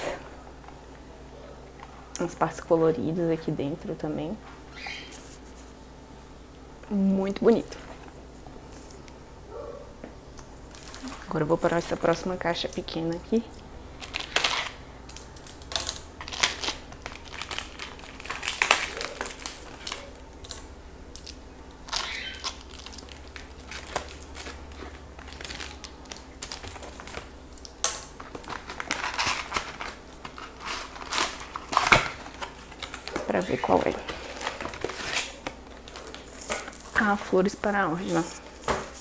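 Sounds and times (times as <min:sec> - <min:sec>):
cardboard crackling and tearing: 0:14.0 - 0:14.8, 0:15.5 - 0:20.6, 0:21.2 - 0:37.1.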